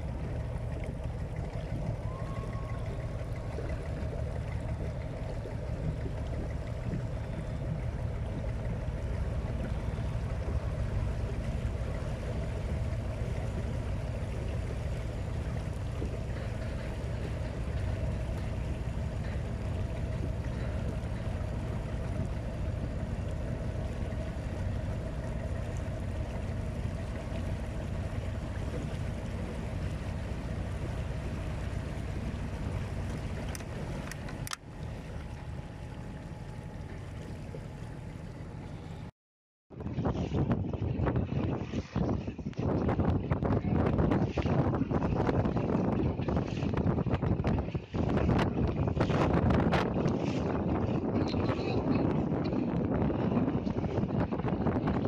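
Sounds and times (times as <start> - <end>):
motorboat engine running: 0.0 - 39.1, 39.7 - 55.0.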